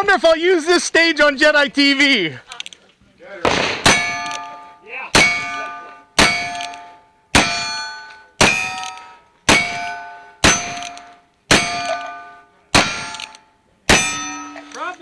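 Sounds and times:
revolver shots: 3.4 - 4.4
steel plate ringing clang: 3.8 - 15.0.

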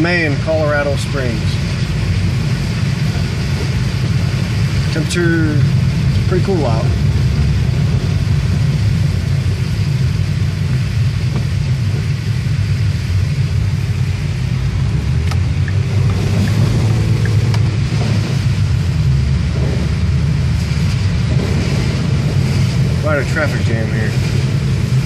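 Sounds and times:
car engine and road rumble: 0.0 - 25.0
tyres hissing through slush: 0.2 - 25.0.

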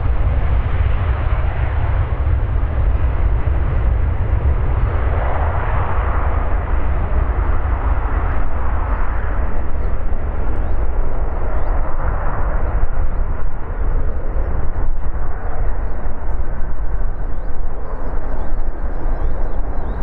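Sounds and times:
jet engines rumbling: 0.0 - 20.0.

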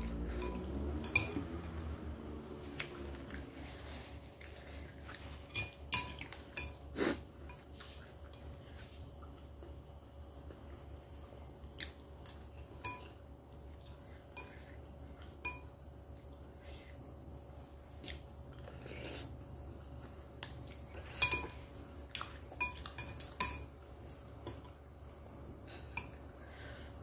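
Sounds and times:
chopsticks and spoon clinking bowl: 0.0 - 3.5, 4.5 - 8.5, 12.6 - 13.2, 13.9 - 15.8, 20.7 - 24.8.

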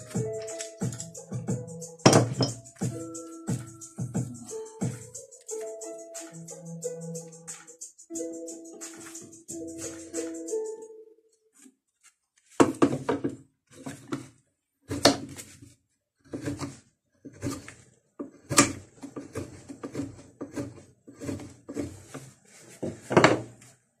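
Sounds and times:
gouge cutting into wood: 16.3 - 22.2.

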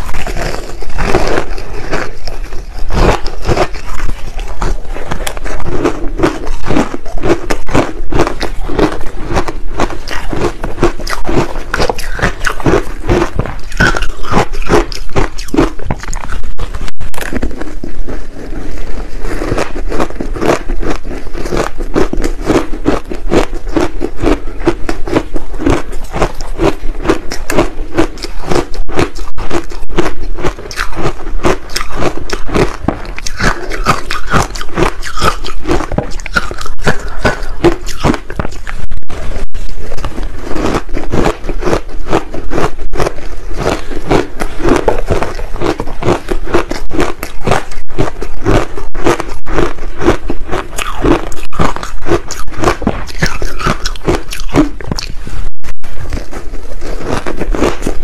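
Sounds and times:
crunchy chewing of ice: 0.0 - 58.0.

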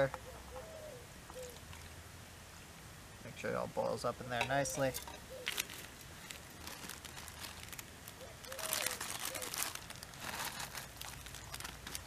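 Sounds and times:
plastic wrapper crinkling: 4.8 - 12.0.

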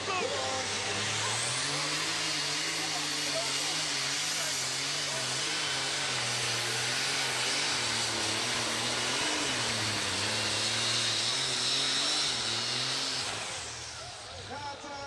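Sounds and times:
tractor engine droning at full load: 0.0 - 15.0.

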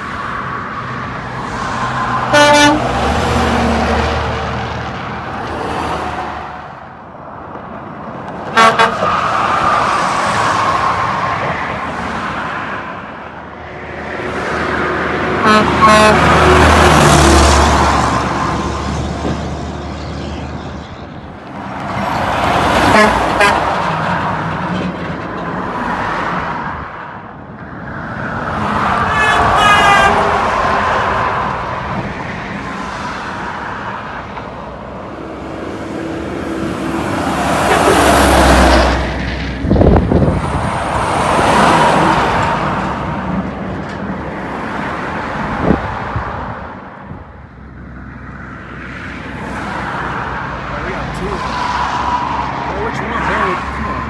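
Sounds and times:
vehicles passing on highway: 0.0 - 54.0
vehicle horn toot: 2.3 - 2.9, 8.6 - 9.0, 15.4 - 16.3, 22.9 - 23.6, 29.1 - 30.4.

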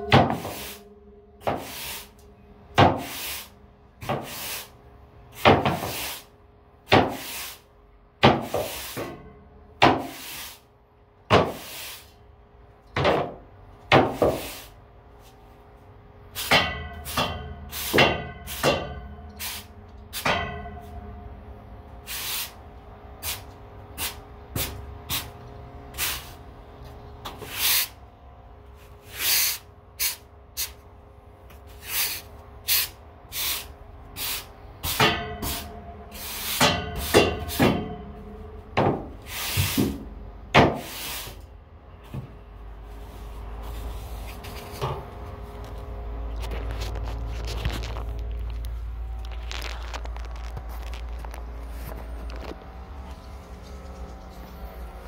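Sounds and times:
push broom sweeping concrete: 0.2 - 0.8, 1.4 - 2.2, 2.8 - 4.8, 5.4 - 6.3, 6.9 - 9.1, 9.8 - 10.7, 11.3 - 12.2, 13.9 - 14.8, 16.4 - 18.8, 19.4 - 20.3, 22.0 - 22.6, 26.0 - 26.4, 27.3 - 28.0, 29.0 - 30.8, 31.6 - 37.8, 39.1 - 41.4.

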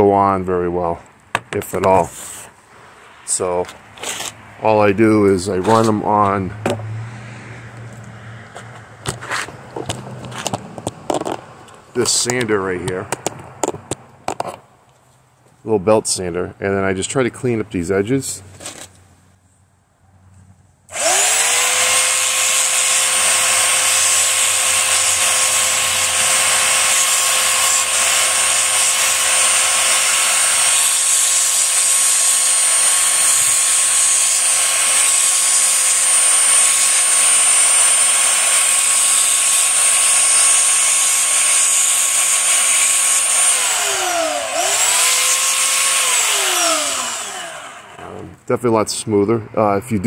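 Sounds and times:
belt sander motor whining: 20.9 - 48.3
metal rods grinding on belt: 22.5 - 47.3.

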